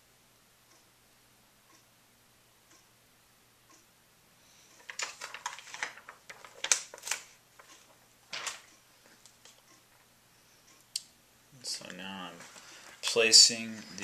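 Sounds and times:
plastic sheet crackling: 0:04.8 - 0:09.6.

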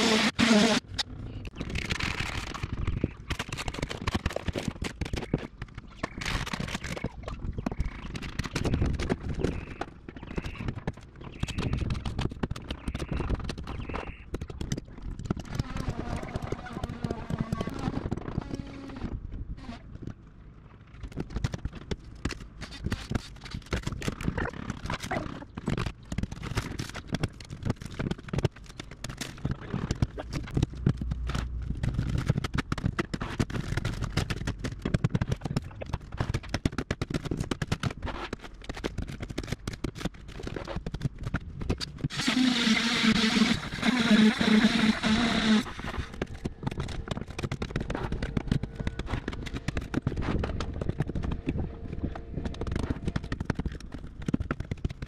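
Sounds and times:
tools scraping fiberglass: 0:42.0 - 0:50.9.

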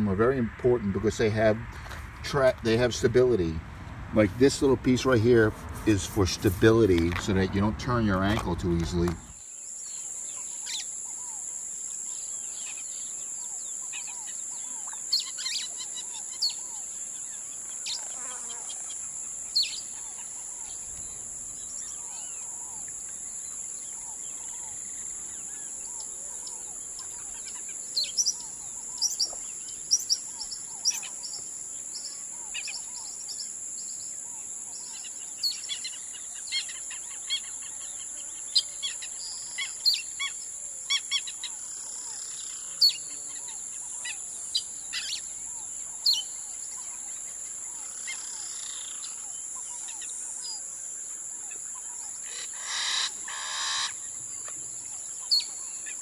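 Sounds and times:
birds chirping and calling: 0:00.0 - 0:50.7, 0:51.4 - 0:56.0
harsh bird calls: 0:51.4 - 0:56.0.

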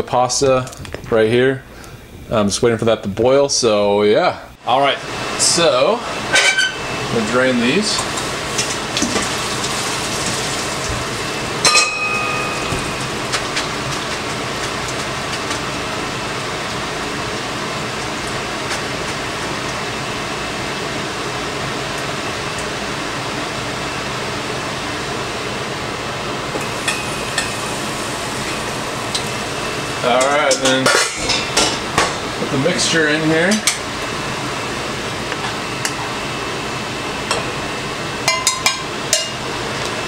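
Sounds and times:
water running into sink: 0:08.1 - 0:15.2
metal colander clank: 0:11.6 - 0:13.3.

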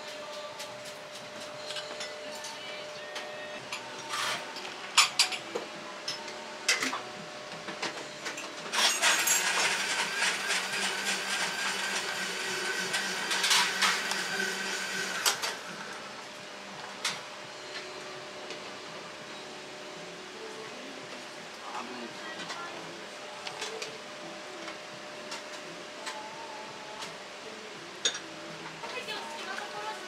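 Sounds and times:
machine whirring: 0:06.7 - 0:16.5.

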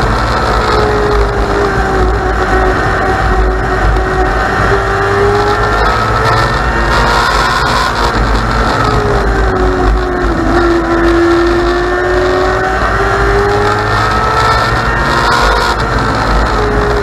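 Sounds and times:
race car engine at speed: 0:00.0 - 0:17.0.

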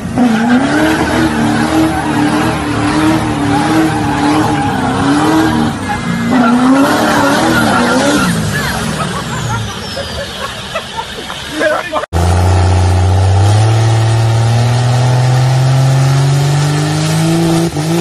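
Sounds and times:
tires squealing on pavement: 0:00.0 - 0:12.7
diesel truck engine revving: 0:00.0 - 0:18.0.

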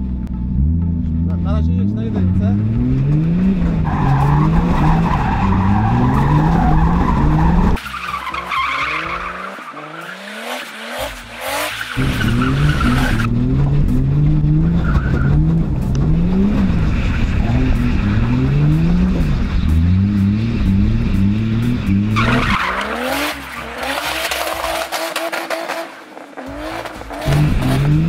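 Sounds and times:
car engine revving: 0:00.0 - 0:28.0
tyre squeal and screech: 0:03.8 - 0:13.3, 0:22.1 - 0:28.0.

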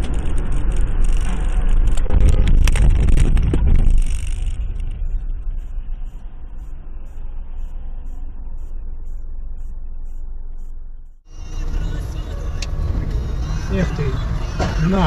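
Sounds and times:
car engine and tyre rumble: 0:00.0 - 0:15.0
faint regular ticking: 0:05.1 - 0:11.2.

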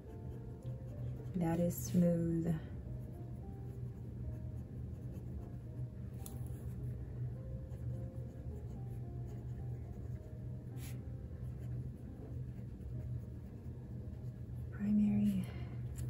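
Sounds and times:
low hum: 0:00.0 - 0:16.0
pen nib scratching on paper: 0:07.7 - 0:14.4.

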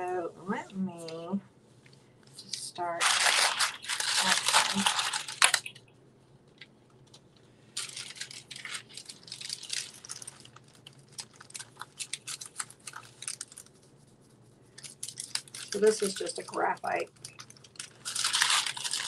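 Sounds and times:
paper rustling: 0:02.4 - 0:05.8, 0:07.8 - 0:13.9, 0:14.7 - 0:19.0.

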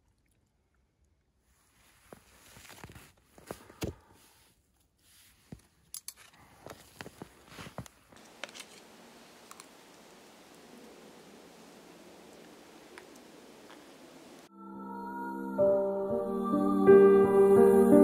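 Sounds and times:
clothing rustle: 0:01.4 - 0:11.5.

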